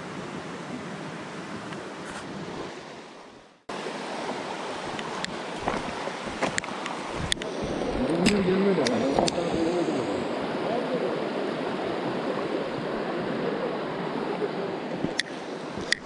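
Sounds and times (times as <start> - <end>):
stream running over stones: 3.7 - 16.0
sharp clicks: 15.0 - 16.0.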